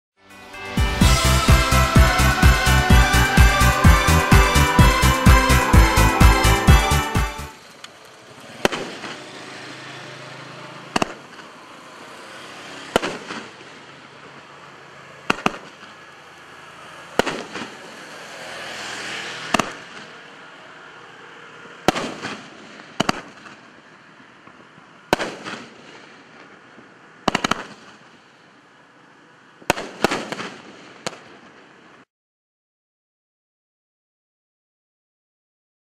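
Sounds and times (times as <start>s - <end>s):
fireworks reports: 0.3s - 18.4s, 19.2s - 32.0s
fireworks hiss: 25.1s - 28.4s.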